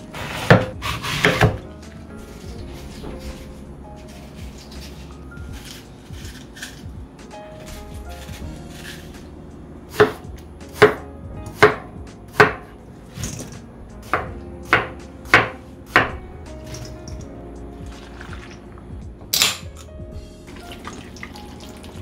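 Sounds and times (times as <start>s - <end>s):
knife chopping watermelon on board: 0.3s - 1.6s, 9.9s - 12.7s, 14.1s - 16.2s.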